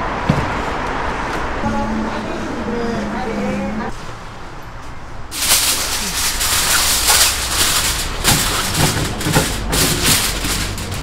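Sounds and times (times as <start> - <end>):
foil crinkling: 5.3 - 11.0.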